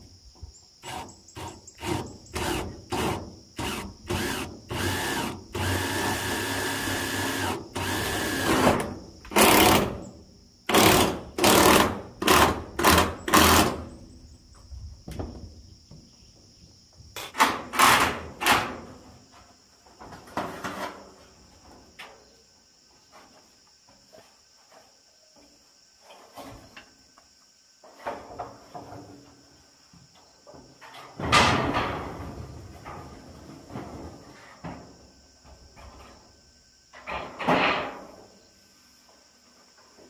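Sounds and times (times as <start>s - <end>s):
metal roofing sheets clattering: 20.0s - 21.4s, 30.8s - 34.4s.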